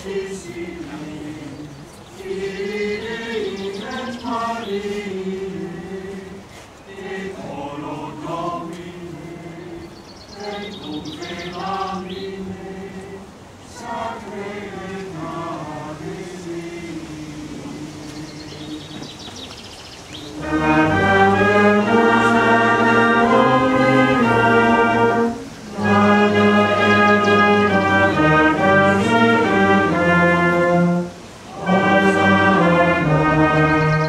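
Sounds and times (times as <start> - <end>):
choir singing a hymn: 0.0 - 19.4, 20.2 - 34.0.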